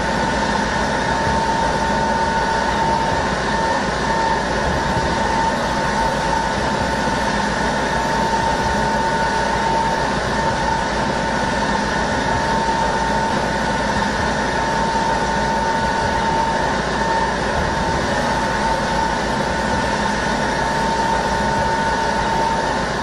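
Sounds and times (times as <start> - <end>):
machine drone with whine: 0.0 - 23.0.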